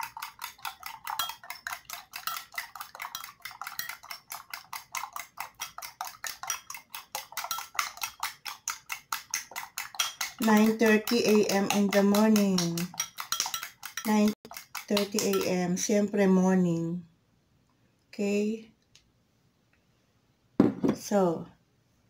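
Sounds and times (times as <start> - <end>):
whisk clinking in ceramic bowl: 0.0 - 15.9.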